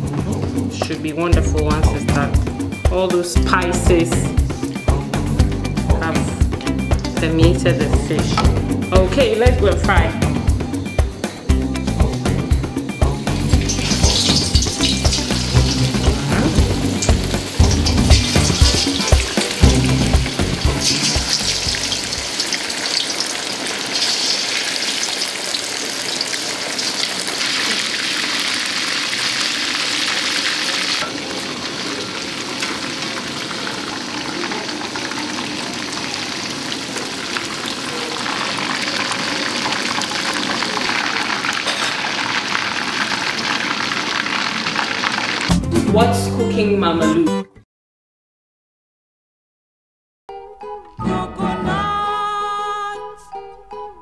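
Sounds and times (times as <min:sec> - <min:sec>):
fish deep-frying in oil: 0:13.2 - 0:45.5.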